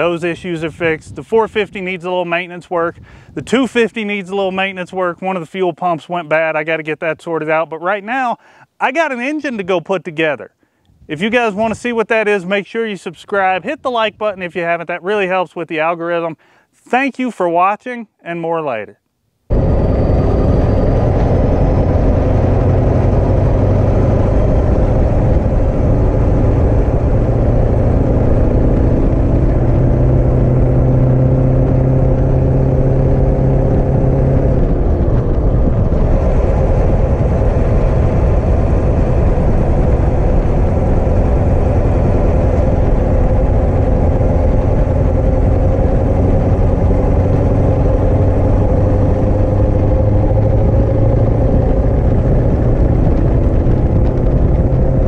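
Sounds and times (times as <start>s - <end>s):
truck engine working hard: 19.5s - 55.0s.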